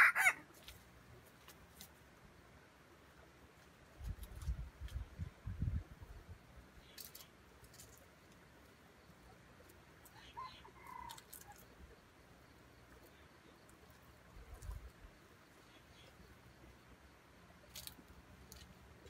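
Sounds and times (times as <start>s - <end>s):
junglefowl clucking: 0.0s - 0.7s, 10.0s - 11.8s.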